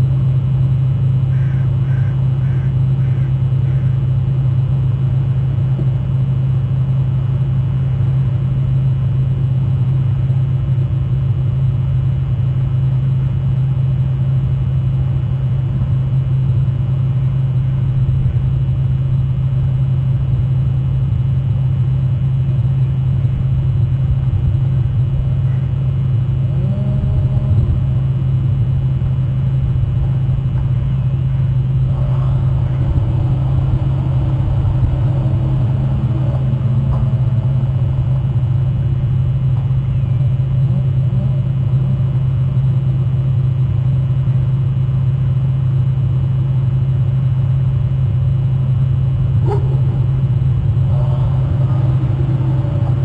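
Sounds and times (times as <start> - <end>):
low hum and rumble: 0.0 - 53.0
faint wavering tones: 16.2 - 43.5, 48.7 - 53.0.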